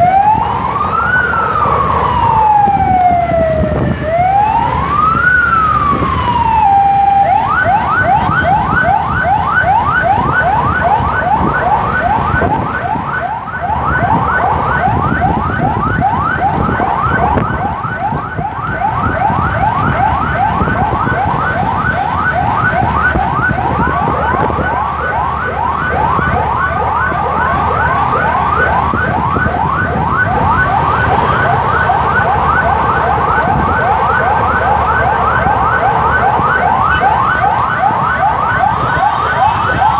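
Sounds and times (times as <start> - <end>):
emergency siren wailing and yelping: 0.0 - 39.9
road noise: 0.0 - 39.9.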